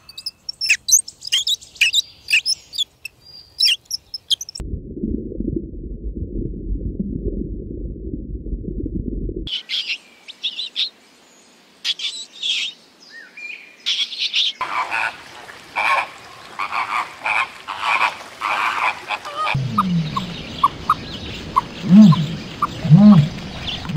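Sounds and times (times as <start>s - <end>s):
high squeaks and chirps: 0.0s - 4.6s
dense low animal rumbling: 4.6s - 9.5s, 19.5s - 23.9s
flamingos honking: 14.6s - 23.9s.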